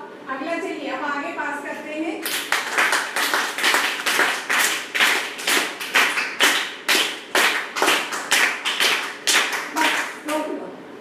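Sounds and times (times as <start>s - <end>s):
rhythmic hand clapping: 2.2s - 10.4s.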